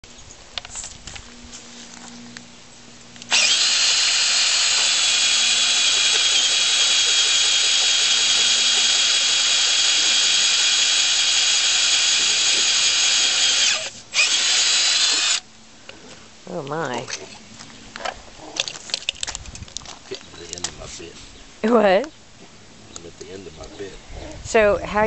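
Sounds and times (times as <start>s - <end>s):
drill grinding through rock: 3.3s - 15.4s.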